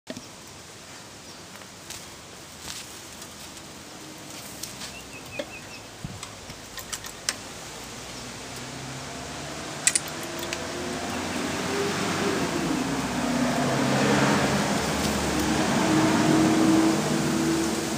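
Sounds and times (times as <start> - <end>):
engine low hum: 3.2 - 17.9
metallic clicks and clinks: 6.5 - 7.4, 9.8 - 10.7.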